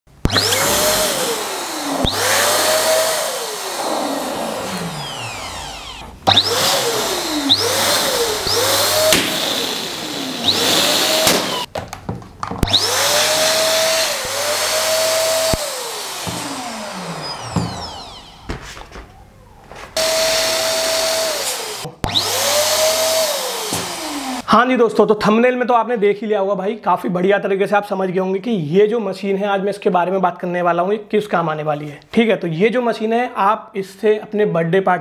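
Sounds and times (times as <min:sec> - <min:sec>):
electric air pump motor whine: 0:00.3 - 0:11.7, 0:12.6 - 0:24.4.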